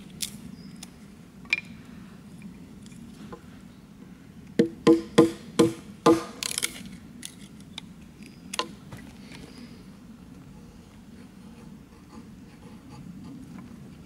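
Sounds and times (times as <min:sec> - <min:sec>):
stick splitting with crackle: 0:00.0 - 0:01.0, 0:06.2 - 0:08.7
hatchet knocking against log: 0:04.6 - 0:06.3.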